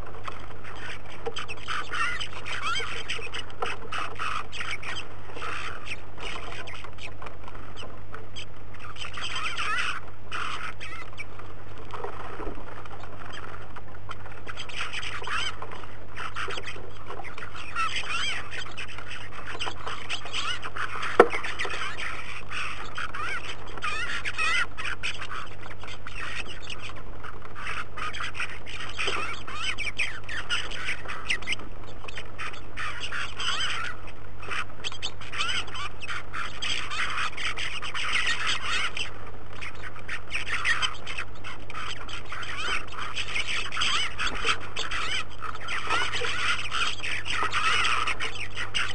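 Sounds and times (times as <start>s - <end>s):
flock of birds chattering: 0.0s - 48.9s
low electrical hum: 0.0s - 48.9s.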